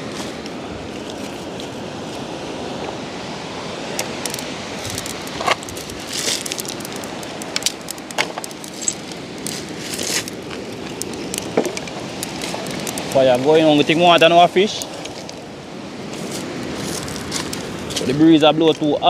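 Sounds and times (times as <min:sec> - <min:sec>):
wind: 0:00.0 - 0:19.0
kindling crackling: 0:04.0 - 0:15.5.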